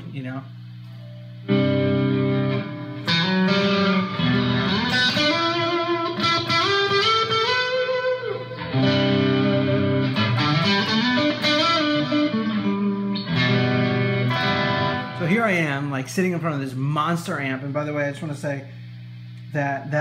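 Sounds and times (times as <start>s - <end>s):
electric guitar chords and lead: 1.1s - 15.7s.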